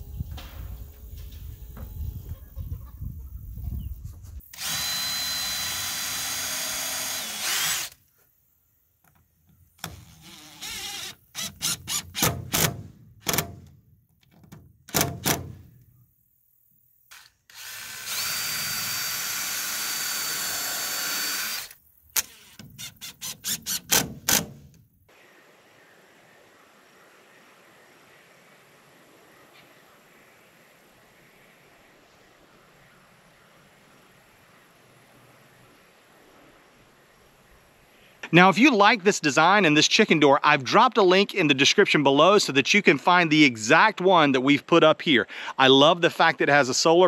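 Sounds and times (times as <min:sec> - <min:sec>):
drill trigger bursts: 0:04.5 - 0:08.0, 0:10.0 - 0:12.6, 0:17.1 - 0:24.5
drill whining: 0:04.5 - 0:08.0, 0:09.8 - 0:12.2, 0:17.1 - 0:24.0.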